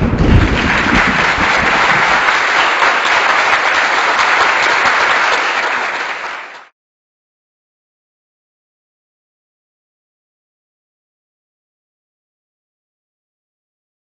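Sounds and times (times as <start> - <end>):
low rumble: 0.0 - 2.2
crowd applauding: 0.0 - 6.8.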